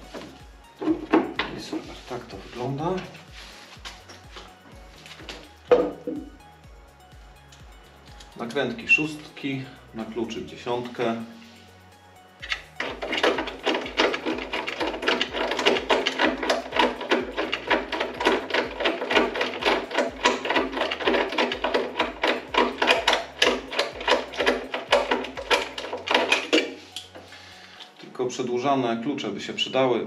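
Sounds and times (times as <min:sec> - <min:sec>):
ratchet wrench clicking: 0:12.4 - 0:27.1.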